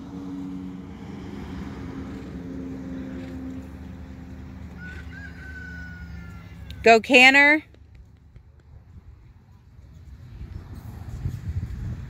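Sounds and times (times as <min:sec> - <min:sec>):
low motor hum: 0:00.0 - 0:05.0
outdoor rumble: 0:00.0 - 0:12.0.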